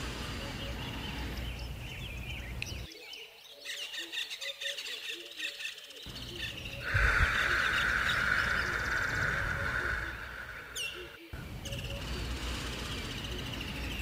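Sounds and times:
steady high hiss: 0:00.0 - 0:02.9, 0:06.1 - 0:14.0
birds chirping: 0:00.0 - 0:14.0.

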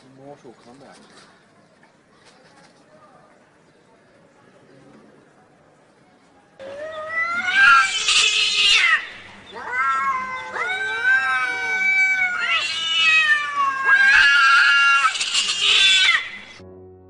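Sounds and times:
cats yowling: 0:06.6 - 0:16.6.

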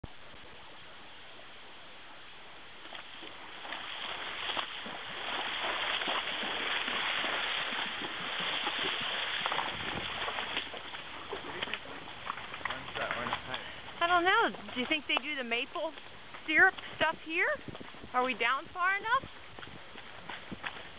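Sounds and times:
hooves splashing through creek: 0:00.1 - 0:20.9.

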